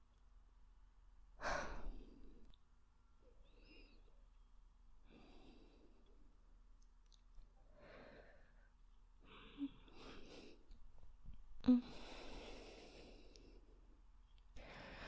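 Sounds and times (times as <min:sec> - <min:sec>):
woman breathing softly: 0:01.4 - 0:02.6, 0:03.3 - 0:04.2, 0:05.0 - 0:06.4, 0:07.6 - 0:10.8, 0:11.6 - 0:15.0.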